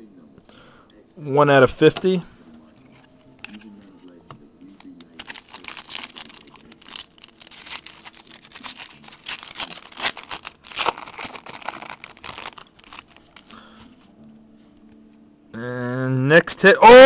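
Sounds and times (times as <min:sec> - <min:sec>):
foil wrapper tearing and crinkling: 0:05.0 - 0:13.7.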